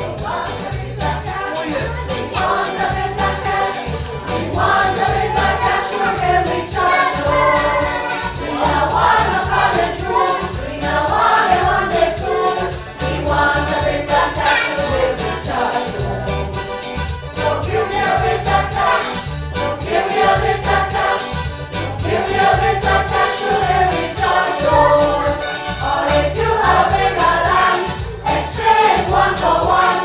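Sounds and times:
steady bass line and beat: 0.0 - 29.9
band accompaniment: 0.0 - 30.0
choir singing: 0.0 - 30.0.

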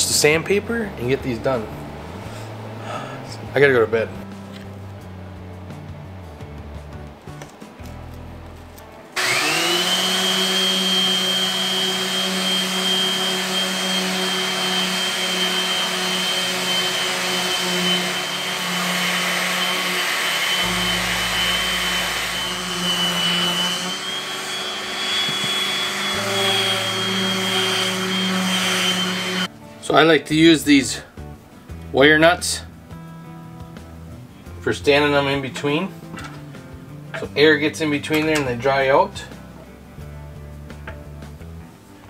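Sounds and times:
orbital sander whining on wood: 9.2 - 29.5.

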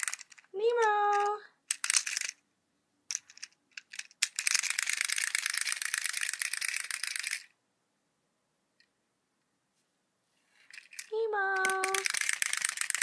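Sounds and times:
wind-up toy clicking rattle: 0.0 - 0.5, 1.1 - 2.4, 3.8 - 7.5, 10.8 - 13.0.

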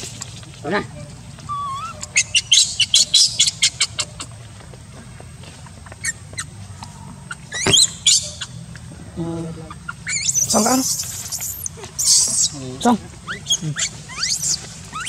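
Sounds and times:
baby monkey squealing: 1.5 - 4.3, 7.2 - 8.6, 9.6 - 12.6, 13.3 - 15.0
monkey screaming: 1.5 - 4.3, 7.2 - 8.6, 9.7 - 12.6, 13.3 - 15.0.

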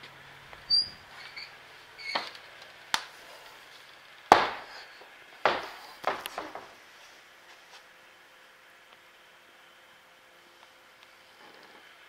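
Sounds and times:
sharp knocks and thumps: 4.3 - 4.8, 5.4 - 6.8.

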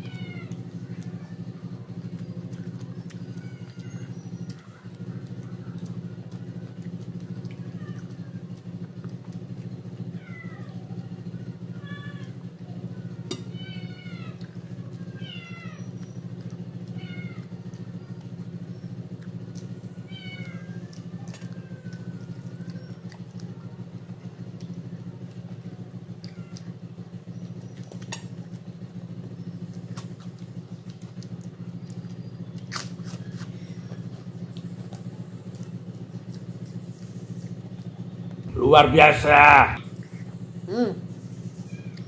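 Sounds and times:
steady low hum: 33.6 - 42.0.

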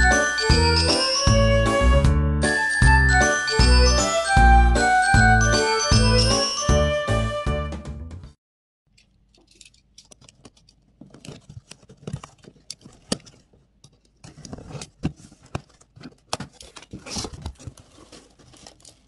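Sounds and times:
bubble wrap crinkling: 15.2 - 19.0.

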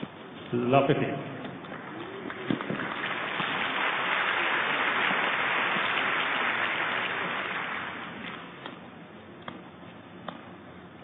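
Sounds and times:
crowd applauding: 1.6 - 8.4.

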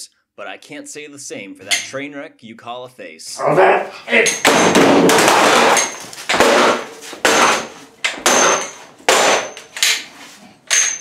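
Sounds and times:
monitor being stomped on: 4.4 - 9.6.

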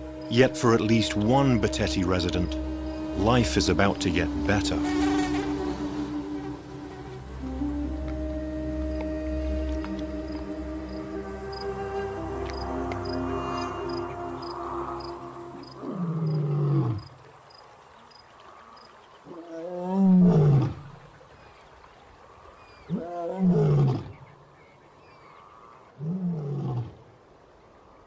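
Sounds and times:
lion roaring: 15.6 - 17.0.

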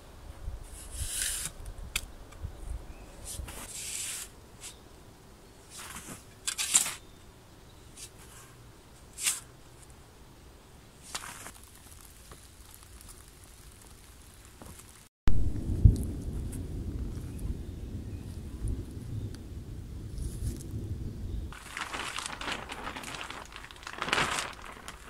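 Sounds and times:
shovel digging sandy soil: 0.6 - 1.6, 3.2 - 4.8, 5.7 - 7.1, 9.1 - 9.5, 11.0 - 12.3
sand pouring onto plastic tarp: 11.0 - 15.1, 21.5 - 25.0.

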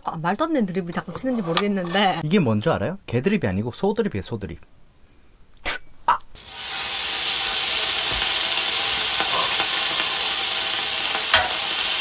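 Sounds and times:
beef sizzling on a griddle: 6.4 - 12.0.

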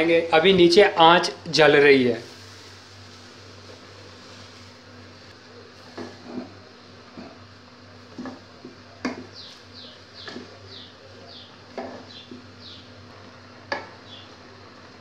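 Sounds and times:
small bird chirping: 9.2 - 12.9, 14.0 - 14.4.

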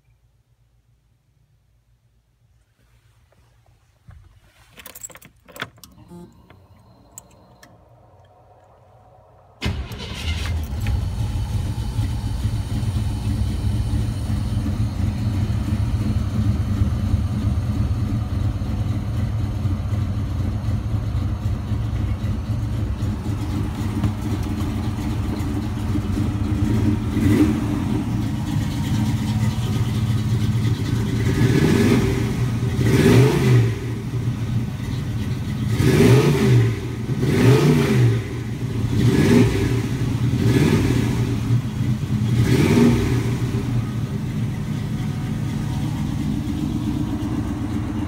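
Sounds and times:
van engine starting and running: 3.3 - 48.0
clicks and rattles: 4.7 - 7.7.

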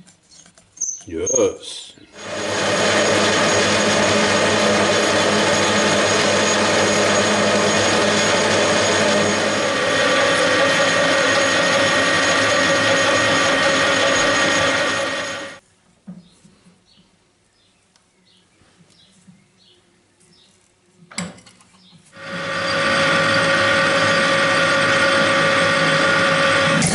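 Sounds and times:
gear whine: 2.2 - 15.6, 22.2 - 26.9
metal lathe running: 2.2 - 15.6, 22.2 - 26.9.

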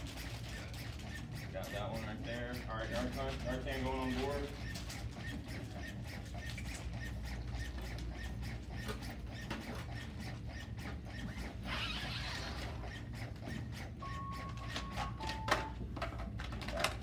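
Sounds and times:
machine hum with clicks: 4.2 - 17.0.

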